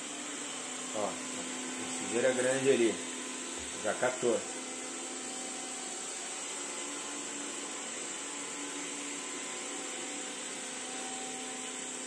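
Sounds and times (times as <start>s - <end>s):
robot vacuum cleaner whirring: 0.0s - 12.0s.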